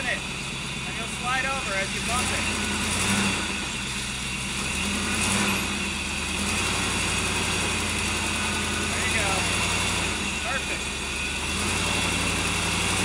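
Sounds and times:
model truck engine at low revs: 0.0 - 13.0.

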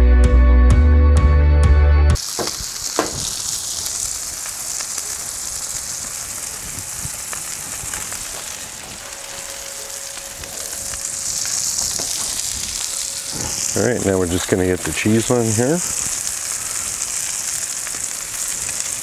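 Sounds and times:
background music: 0.0 - 2.2
burgers sizzling on griddle: 2.2 - 19.0.

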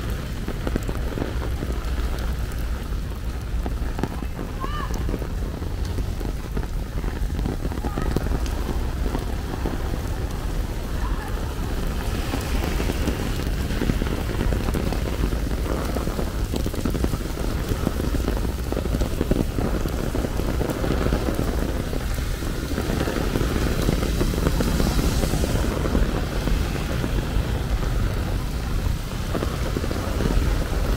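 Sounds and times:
rain pattering on surfaces: 0.0 - 30.9.

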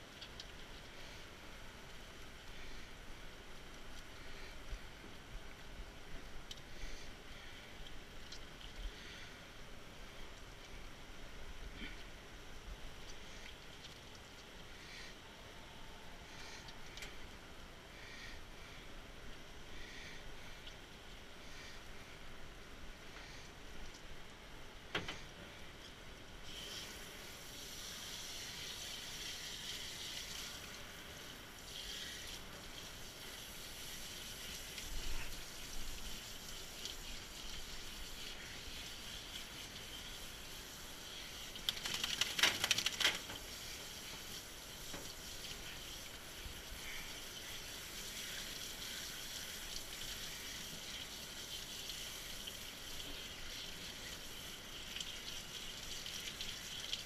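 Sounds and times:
water trickling from sprayer: 26.4 - 57.0.

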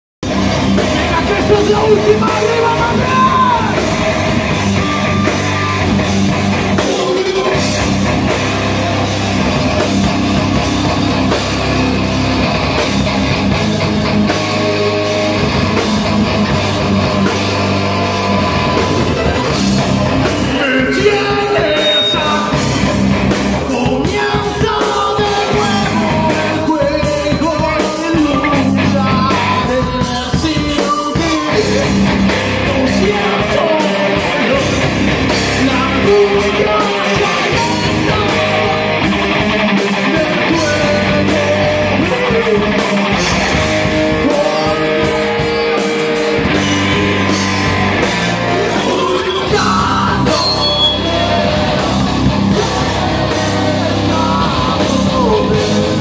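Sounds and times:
bass guitar: 0.2 - 56.0
drum kit: 0.2 - 56.0
electric guitars: 0.2 - 56.0
person singing: 0.9 - 5.9, 16.8 - 22.9, 23.6 - 56.0.

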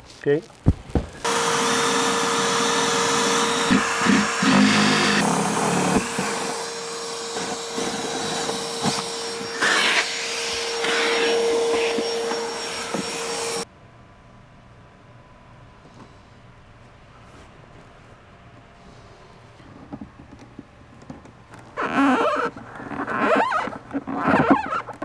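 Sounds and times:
power drill boring: 1.2 - 13.6
shop vacuum whining: 1.2 - 13.7.

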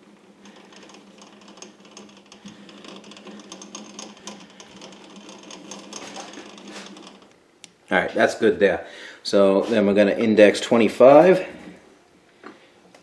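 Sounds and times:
tool bit scraping metal: 0.4 - 7.3.

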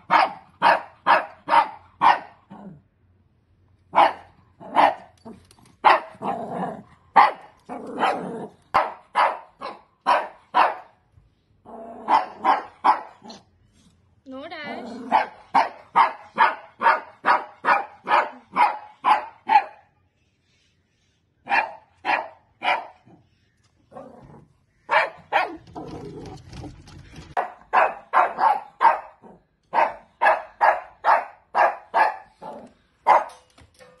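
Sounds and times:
dog barking: 0.0 - 2.5, 3.9 - 5.1, 5.8 - 6.4, 7.1 - 11.0, 12.0 - 13.4, 15.0 - 19.9, 21.4 - 23.2, 24.9 - 25.7, 27.4 - 33.4.

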